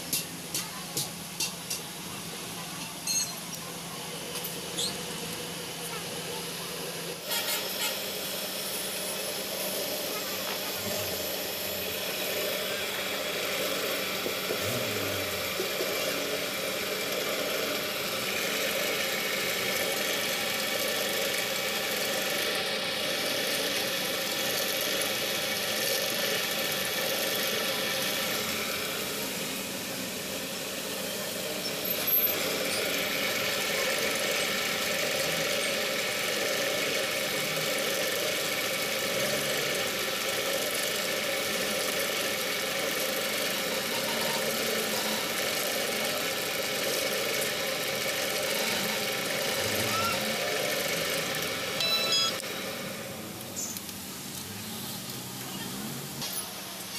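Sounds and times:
pillar drill grinding and squealing: 3.0 - 3.5, 4.4 - 5.2, 48.3 - 52.4.

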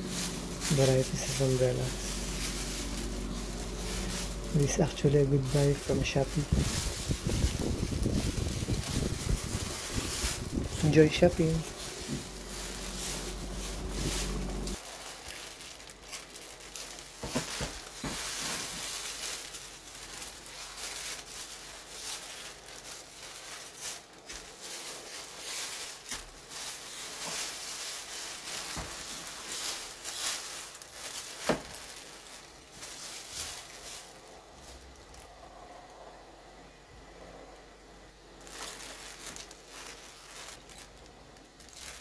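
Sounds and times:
sharp crackles and clicks: 0.0 - 33.0
plastic sleeves crinkling: 0.0 - 35.7, 38.3 - 42.0
plastic bag rustling: 0.0 - 35.8, 38.2 - 42.0.

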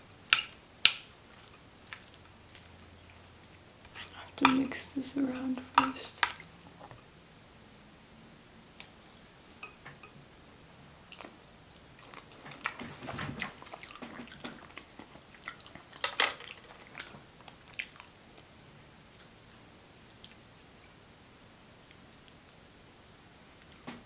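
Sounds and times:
wet chewing: 0.3 - 6.6, 11.1 - 18.5, 20.0 - 20.5
utensil clinking on plate: 16.0 - 16.8.

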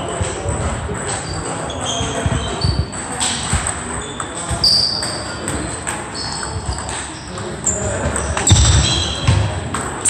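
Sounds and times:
distant voices: 0.0 - 10.0
short high squeaks: 6.1 - 7.8.

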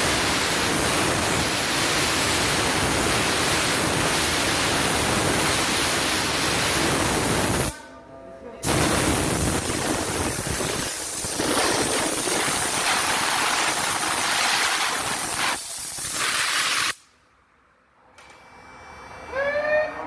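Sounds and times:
steam gun hissing jet: 8.6 - 17.0.

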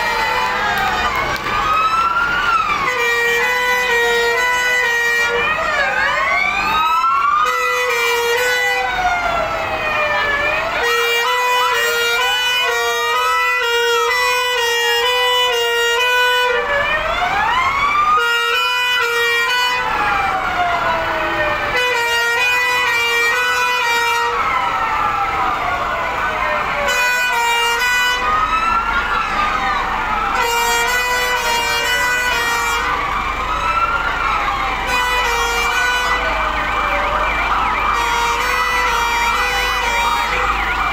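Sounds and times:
fire engine sirens wailing: 0.0 - 40.9
pulsing two-tone siren: 0.0 - 40.9.

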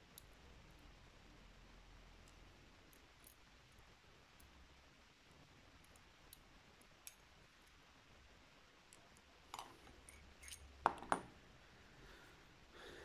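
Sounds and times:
faint clicks of tweezers on metal parts: 0.0 - 1.0, 1.8 - 4.6, 5.7 - 7.8, 8.8 - 10.7.

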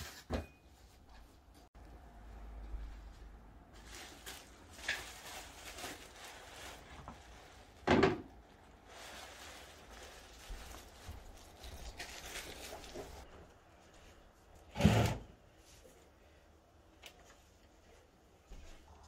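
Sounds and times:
rustling and handling noises: 0.0 - 14.7.

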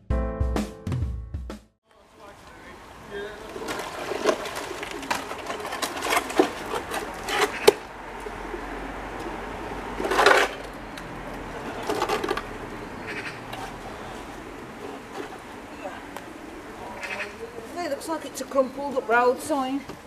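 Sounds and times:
metal scraping on stone: 3.7 - 7.9.

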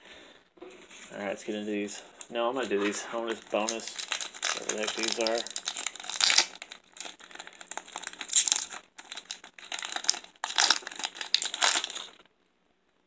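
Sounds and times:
foil wrapper crinkling: 2.6 - 12.3.

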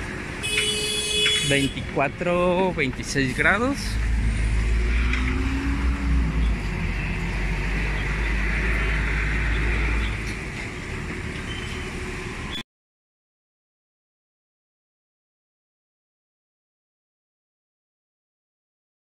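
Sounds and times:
city road traffic: 0.0 - 12.6.

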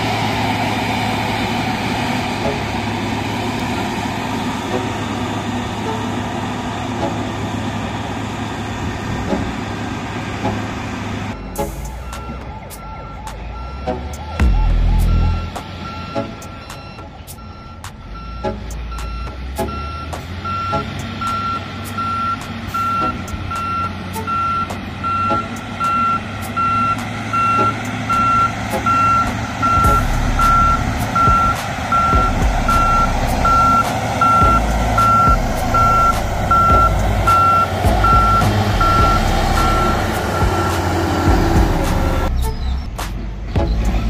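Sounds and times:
diesel engine rumble: 0.0 - 44.0
back-up alarm beeping: 11.3 - 42.3.

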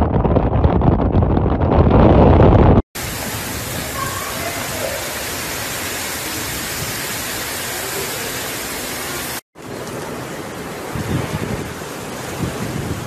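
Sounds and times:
strong wind: 0.0 - 8.0, 8.6 - 13.0
heavy rain: 3.0 - 13.0.

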